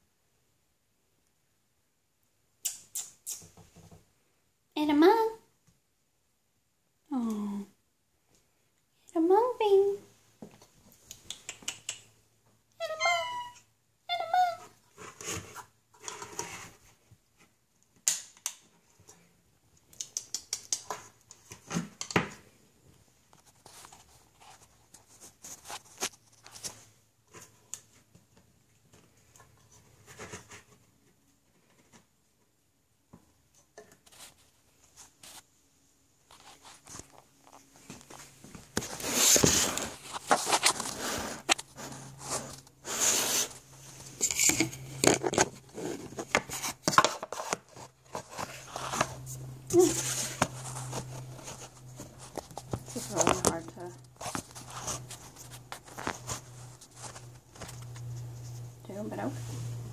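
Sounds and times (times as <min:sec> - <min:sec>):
kitten meowing: 0:12.8 - 0:14.7.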